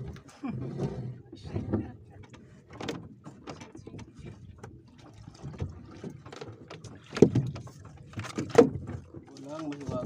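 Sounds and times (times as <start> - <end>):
water splashing and dripping: 2.3 - 10.0
net rustling and knocking on hull: 5.4 - 10.0.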